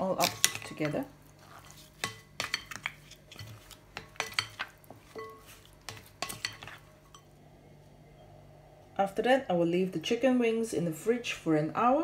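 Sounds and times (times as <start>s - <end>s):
spoon stirring in glass bowl: 0.2s - 7.3s.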